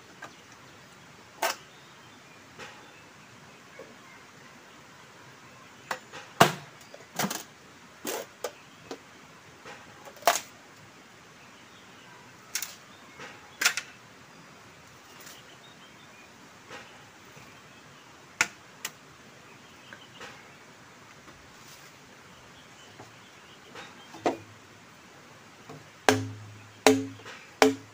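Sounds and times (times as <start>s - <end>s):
machete chopping bamboo: 6.4s - 6.7s, 26.1s - 27.9s.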